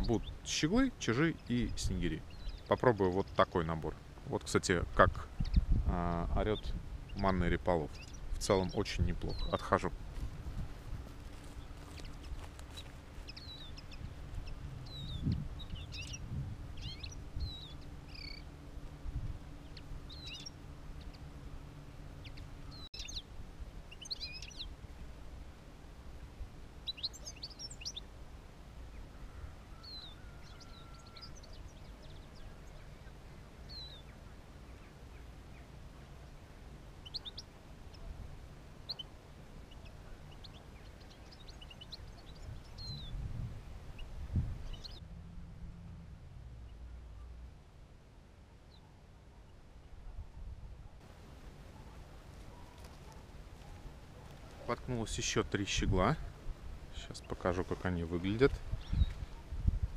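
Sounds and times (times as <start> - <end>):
finches chirping: 0.0 - 4.4, 5.0 - 5.8, 6.4 - 9.8, 11.4 - 18.6, 19.6 - 21.4, 22.1 - 23.3, 23.9 - 24.8, 26.8 - 28.1, 29.8 - 45.0, 51.7 - 59.6
faint low hum: 0.0 - 59.9.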